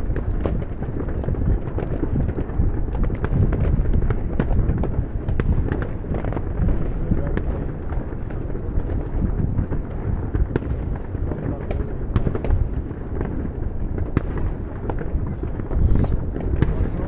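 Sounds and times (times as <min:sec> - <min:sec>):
fireworks and firecrackers banging: 0:00.0 - 0:17.0.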